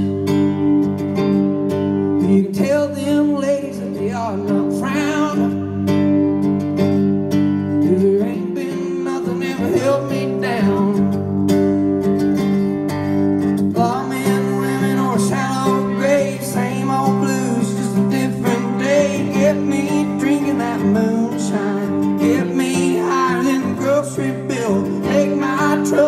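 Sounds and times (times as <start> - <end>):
acoustic guitar strumming: 0.0 - 26.0
man singing: 2.2 - 5.8, 7.8 - 11.4, 13.6 - 26.0.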